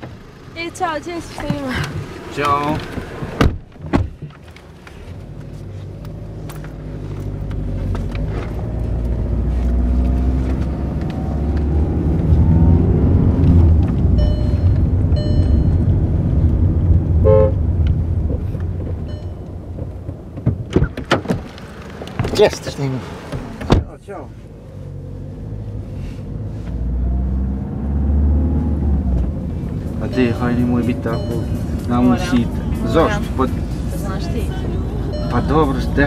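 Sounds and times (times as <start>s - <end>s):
car engine accelerating: 0.0s - 3.8s, 4.5s - 36.0s
car horn toots: 17.2s - 17.6s.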